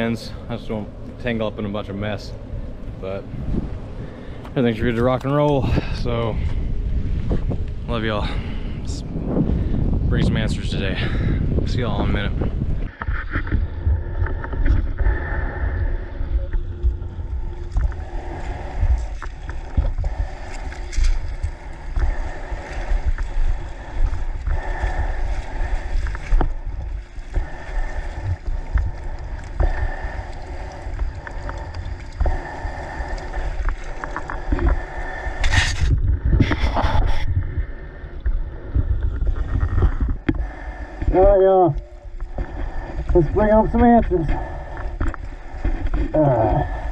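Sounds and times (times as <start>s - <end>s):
water splashing against hull: 0.0s - 46.9s
wind buffeting microphone: 0.0s - 46.9s
outboard motor running: 12.2s - 37.8s.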